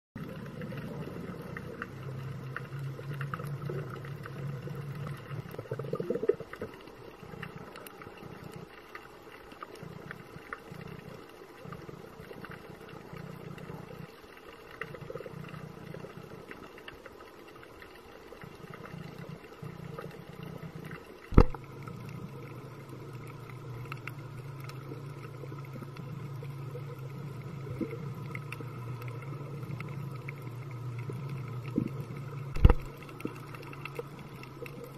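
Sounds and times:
faint clicks and crackles: 0.2s - 34.9s
low underwater hum: 0.2s - 34.9s
sharp knock: 21.4s - 21.6s.

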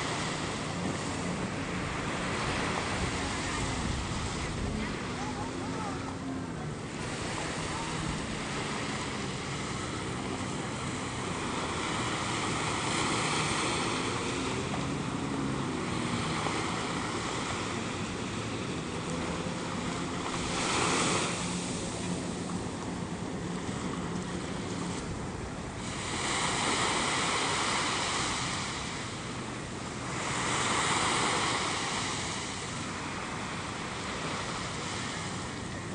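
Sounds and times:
wind buffeting microphone: 0.0s - 12.8s
surf washing up a beach: 0.0s - 35.9s.

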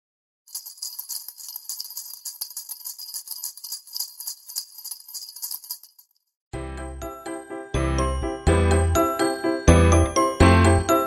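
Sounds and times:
jingle bells shaken: 0.5s - 6.2s.

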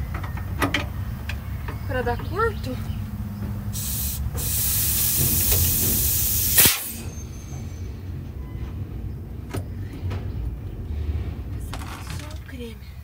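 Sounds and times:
compressed air hissing: 3.6s - 7.7s
sharp air blast: 3.7s - 7.5s
light knocks of air lines: 4.3s - 7.0s.

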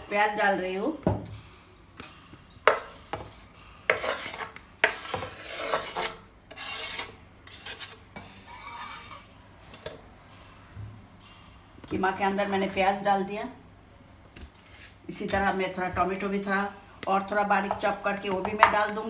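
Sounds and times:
knife scraping on wooden board: 3.9s - 9.2s.

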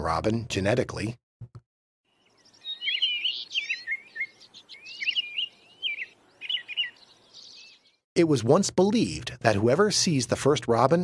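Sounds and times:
robin singing: 2.1s - 8.0s.

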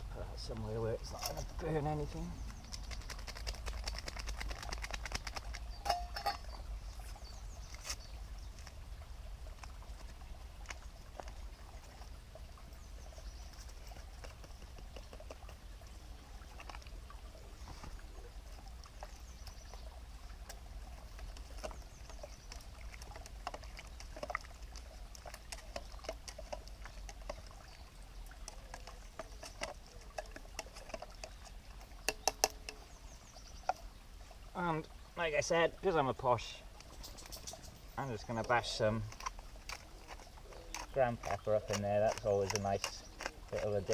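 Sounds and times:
utensil in metal cooking pot: 2.6s - 8.1s, 28.4s - 33.0s, 38.2s - 43.9s.

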